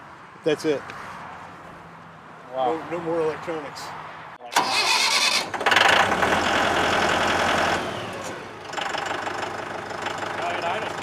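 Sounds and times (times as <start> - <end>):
diesel tractor engine idling: 4.5 - 11.0.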